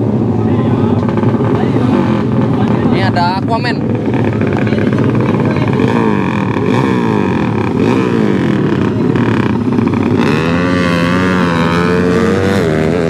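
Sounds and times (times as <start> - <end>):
motorcycle engines revving: 0.0 - 13.0.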